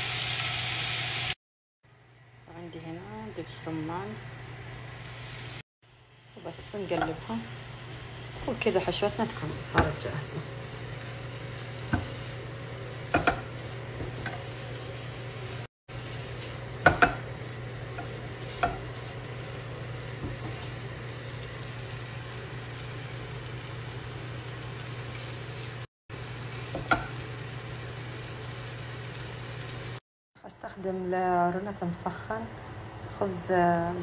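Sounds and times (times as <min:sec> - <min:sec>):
low sizzle and hum: 0:00.0 - 0:34.0
spatula stirring in frying pan: 0:08.3 - 0:21.8
spatula knocking against pan: 0:13.1 - 0:13.5, 0:16.8 - 0:17.3, 0:18.0 - 0:18.8.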